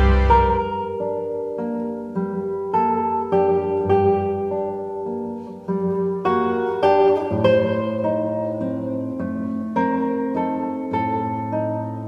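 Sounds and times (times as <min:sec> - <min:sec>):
classical guitar plucking: 0:00.0 - 0:12.0.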